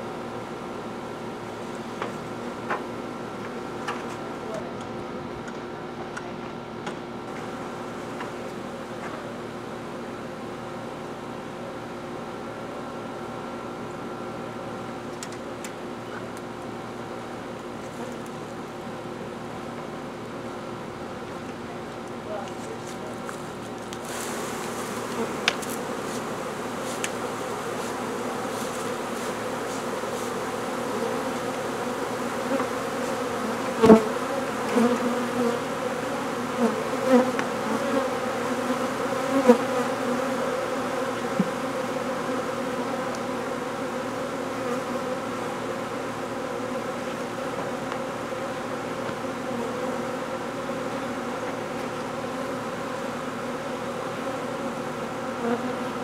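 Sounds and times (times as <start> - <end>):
bee swarm humming: 0.0 - 56.0
single bees buzzing past: 24.0 - 56.0.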